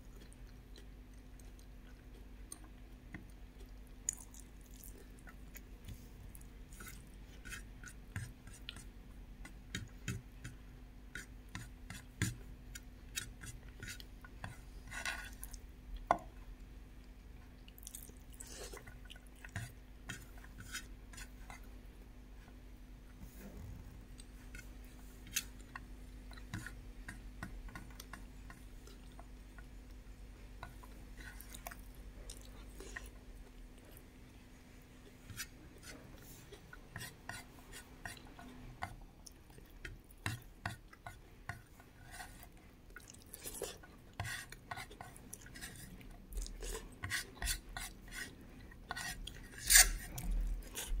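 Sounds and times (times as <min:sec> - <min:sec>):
fingers scraping food on a plate: 0:43.6 - 0:51.0.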